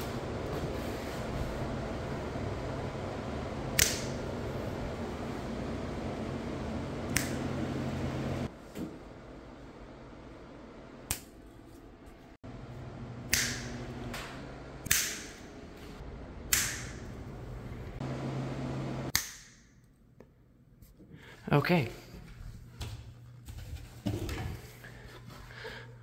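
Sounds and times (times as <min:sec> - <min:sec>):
steady low hum: 0:00.0 - 0:19.1
fingers snapping: 0:03.8 - 0:04.2, 0:07.1 - 0:07.4, 0:11.1 - 0:11.4, 0:13.3 - 0:13.8, 0:14.9 - 0:15.4, 0:16.5 - 0:17.0, 0:19.1 - 0:19.6.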